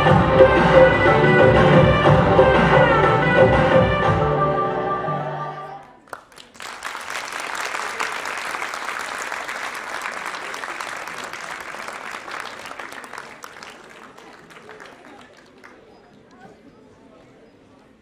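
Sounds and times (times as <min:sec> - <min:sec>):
music: 0:00.0 - 0:05.8
audience clapping: 0:05.8 - 0:16.4.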